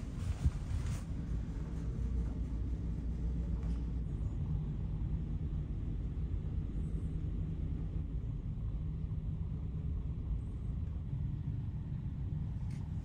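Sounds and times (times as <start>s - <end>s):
low machinery hum: 0.0s - 13.0s.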